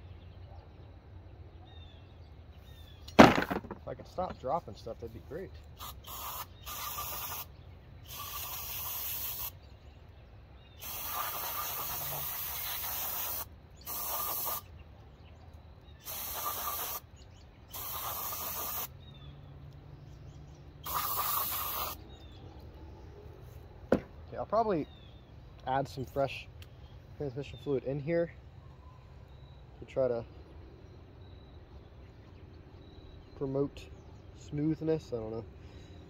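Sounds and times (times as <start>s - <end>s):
aerosol spray hissing: 5.8s - 7.5s, 8.1s - 9.6s, 10.8s - 14.7s, 16.0s - 17.0s, 17.7s - 18.9s, 20.8s - 22.0s.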